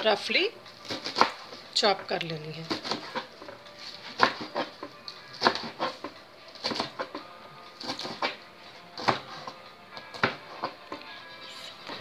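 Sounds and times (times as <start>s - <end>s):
knife chopping on cutting board: 0.8s - 1.6s, 2.6s - 7.2s, 7.8s - 8.4s, 9.0s - 10.8s.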